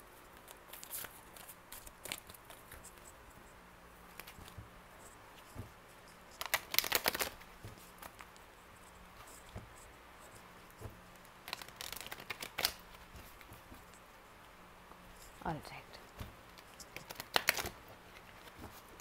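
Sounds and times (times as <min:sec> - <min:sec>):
cards being shuffled: 0:00.3 - 0:03.1, 0:04.1 - 0:04.7, 0:05.3 - 0:08.5, 0:09.1 - 0:14.0, 0:16.1 - 0:19.0.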